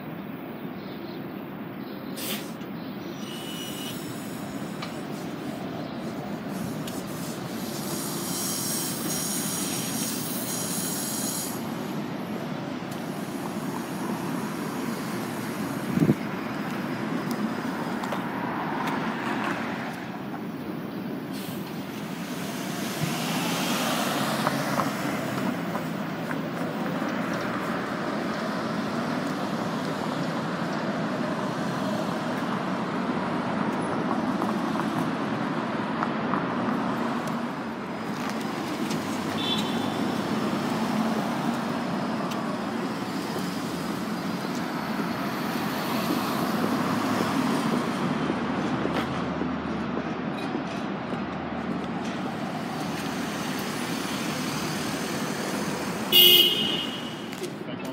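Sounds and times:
city street traffic: 0.0 - 57.9
electric bus passing: 0.0 - 57.9.

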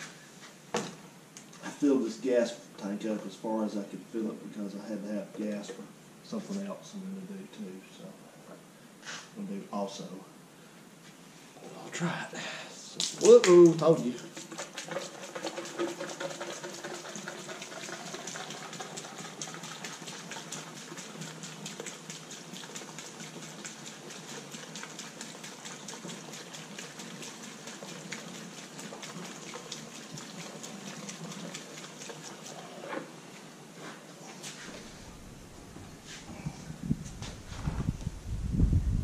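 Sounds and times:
fuel pouring through funnel: 13.2 - 32.8.

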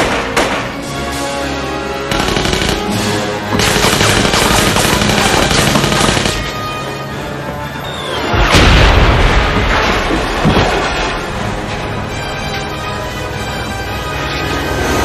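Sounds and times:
dramatic film score: 0.0 - 15.0
automatic gunfire: 2.1 - 3.0, 3.6 - 6.6
loud explosion: 8.4 - 11.2.

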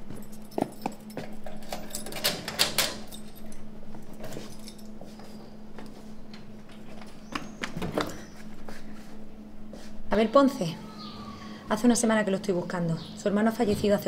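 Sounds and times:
faint steady hum: 0.0 - 14.0
keys jangling in a lock: 0.2 - 5.0.

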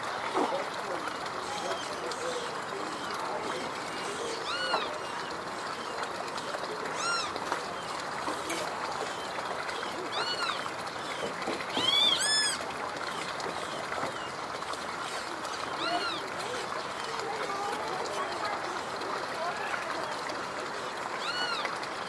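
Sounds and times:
short arched animal calls: 6.9 - 7.4, 11.7 - 12.6.

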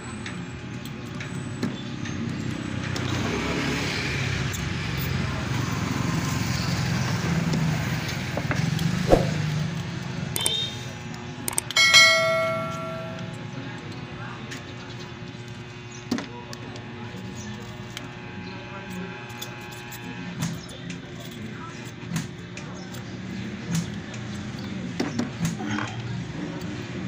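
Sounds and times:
bright bell ding: 11.8 - 13.4.

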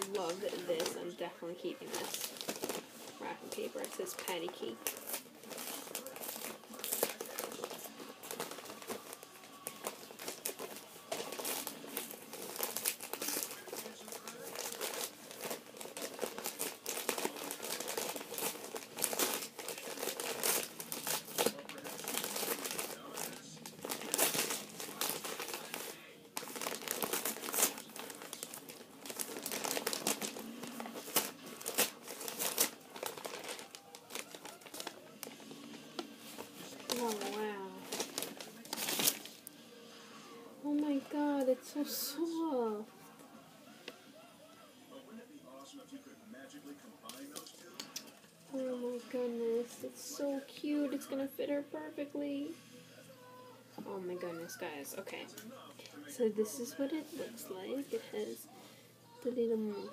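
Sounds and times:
wrapping paper crinkling: 0.0 - 40.0, 53.8 - 59.9.

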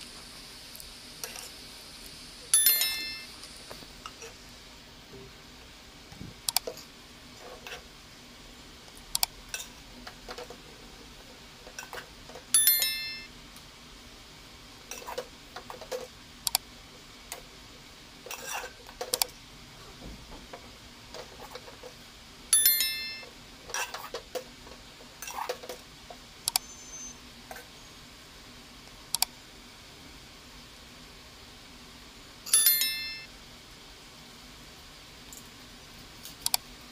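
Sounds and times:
ringing clinks: 2.5 - 3.3, 12.5 - 13.3, 22.5 - 23.3, 32.5 - 33.3.

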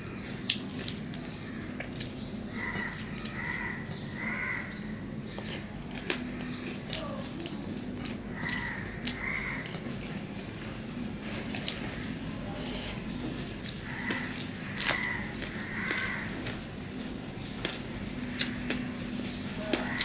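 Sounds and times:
chewing with wet mouth clicks: 4.7 - 9.9, 11.4 - 12.2, 13.2 - 16.7, 17.6 - 19.0.

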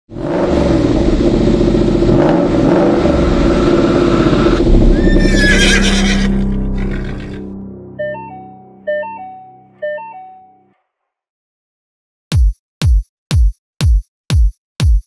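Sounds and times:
car engine running loudly: 0.1 - 5.3
horse whinnying: 4.9 - 7.4.

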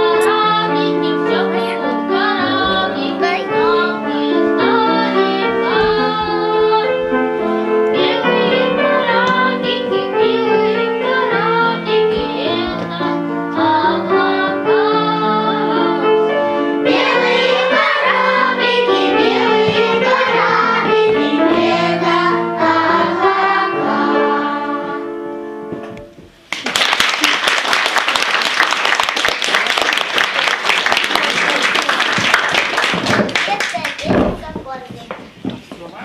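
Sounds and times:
children's choir singing: 0.0 - 25.4
instrumental accompaniment: 0.0 - 26.5
audience applause: 26.5 - 34.1.

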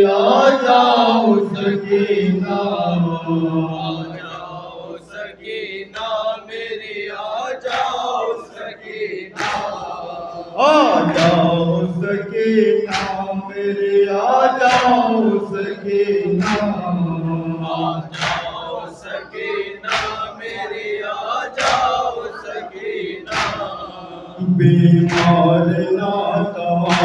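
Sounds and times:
lead voice on microphone: 0.0 - 4.8, 10.2 - 27.0
men chanting a lament: 0.0 - 27.0
hands slapping chest: 12.9 - 13.3, 18.1 - 18.6, 19.9 - 20.2, 21.6 - 22.0.

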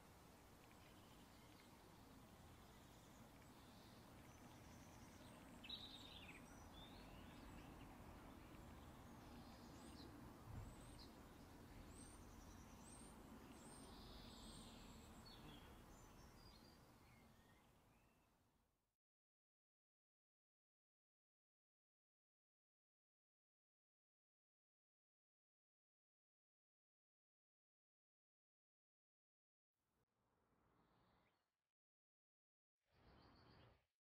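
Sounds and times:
steady low hiss: 0.0 - 17.3
faint birds chirping: 0.0 - 18.7, 33.0 - 33.9.

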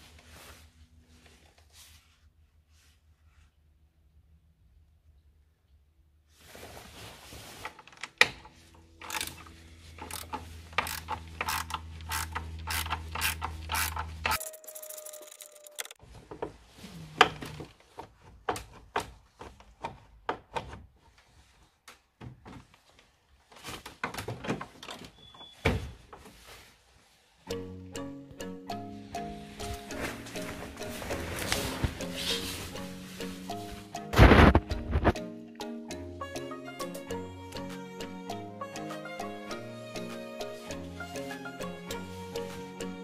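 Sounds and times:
metallic clicks and knocks of tools: 9.0 - 16.0
ratchet wrench clicking: 9.0 - 16.0.

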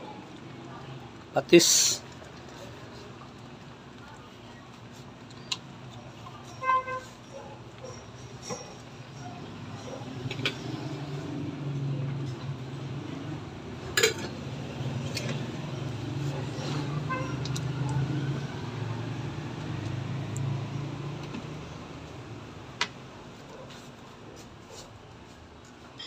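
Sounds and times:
soup boiling in a pot: 0.1 - 25.8
metal lid clinking: 13.9 - 14.4.

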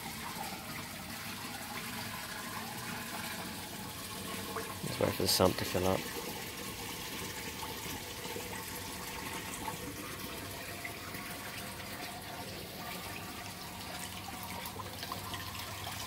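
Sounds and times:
pond pump water running: 0.0 - 16.0.

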